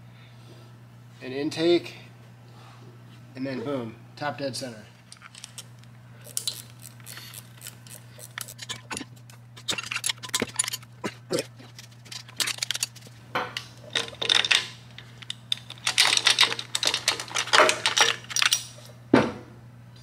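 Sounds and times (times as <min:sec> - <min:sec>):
hand tools clicking on metal: 0:06.2 - 0:18.8.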